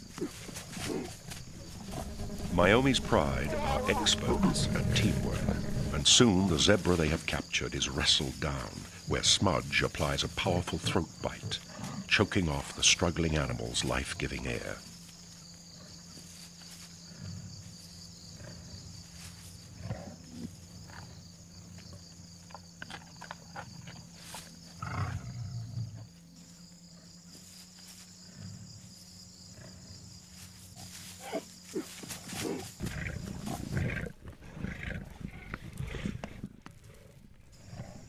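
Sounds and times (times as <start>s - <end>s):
lionesses growling: 0.0s - 12.7s, 24.8s - 26.1s, 30.8s - 38.0s.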